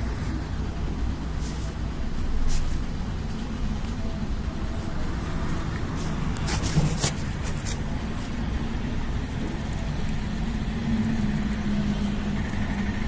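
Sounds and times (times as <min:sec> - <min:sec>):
steady droning tone: 0:00.0 - 0:06.6, 0:07.2 - 0:13.0
vehicle engine rumbling: 0:00.0 - 0:13.0.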